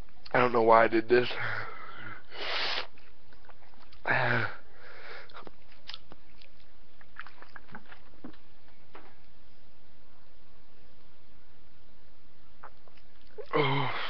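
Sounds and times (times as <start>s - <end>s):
short loud breath: 2.3s - 2.9s
person chewing: 2.8s - 4.1s, 5.2s - 8.6s, 12.6s - 13.6s
wet mouth clicks: 5.2s - 8.4s, 12.6s - 13.6s.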